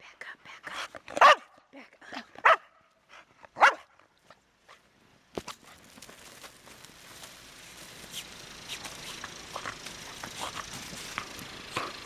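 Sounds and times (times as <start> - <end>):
dog barking: 1.2 - 1.5, 2.4 - 2.8, 3.6 - 3.9
footsteps crunching in snow: 5.4 - 11.7.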